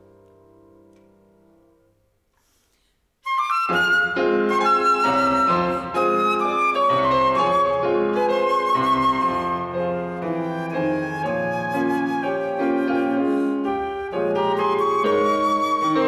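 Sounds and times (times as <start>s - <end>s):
piano chords: 0.0s - 2.2s, 3.5s - 16.0s
flute melody: 3.2s - 16.0s.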